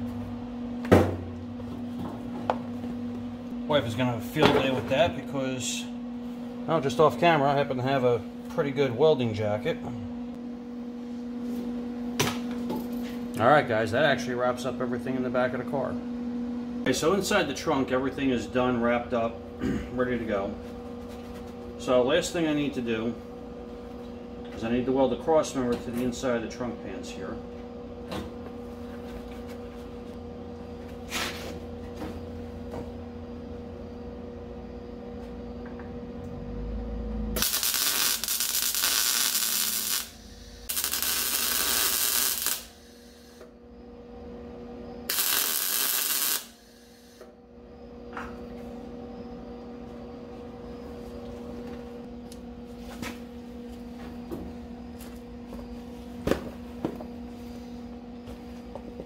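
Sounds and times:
steady hum: 0:00.0 - 0:59.0
electric welding arc: 0:37.4 - 0:43.4, 0:45.1 - 0:47.2.

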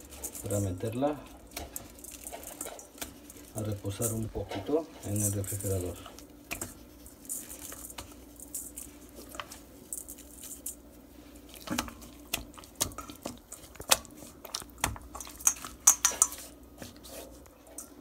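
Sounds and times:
wet squishing of meat in marinade: 0:10.8 - 0:17.4
meat tapping against metal bowl: 0:14.8 - 0:16.4.

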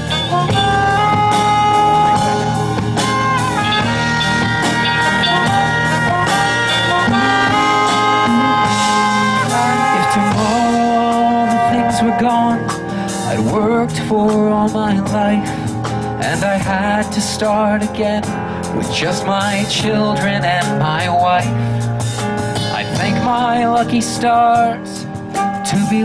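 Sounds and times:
horns holding long chords: 0:00.0 - 0:16.2
steady drum beat: 0:00.0 - 0:26.0.

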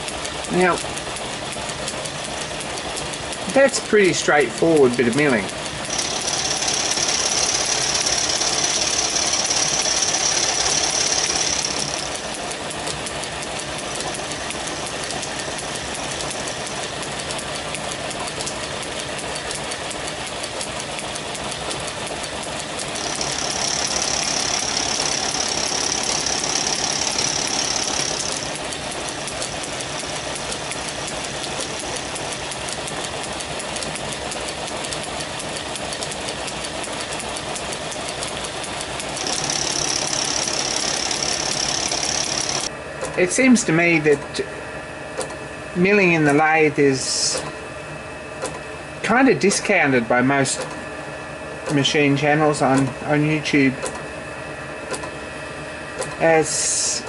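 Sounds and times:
metal lathe running: 0:00.0 - 0:44.3.

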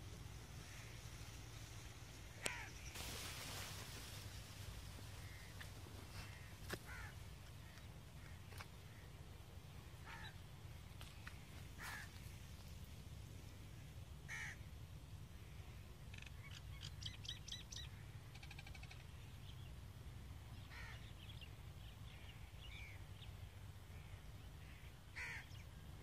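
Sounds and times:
crow cawing: 0:02.4 - 0:02.8, 0:05.2 - 0:05.6, 0:06.2 - 0:09.1, 0:10.0 - 0:10.4, 0:11.8 - 0:12.3, 0:14.3 - 0:14.6, 0:20.7 - 0:21.0, 0:24.6 - 0:25.5
small bird chirping: 0:16.0 - 0:19.6.

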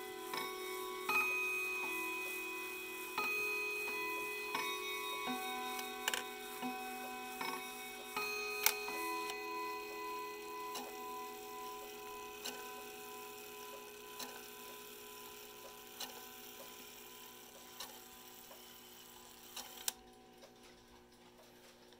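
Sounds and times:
clock chime rods ringing: 0:00.0 - 0:17.1.

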